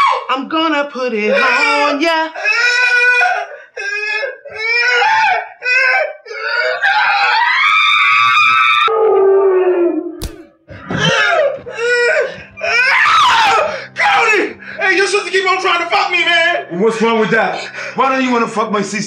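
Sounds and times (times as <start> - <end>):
sharp knock: 10.2 - 10.5.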